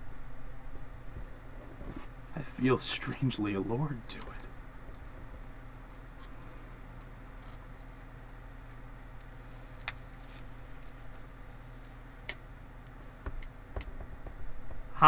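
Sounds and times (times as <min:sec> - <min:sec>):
low room hum: 0:00.0 - 0:15.0
paper mask handling: 0:05.0 - 0:13.2.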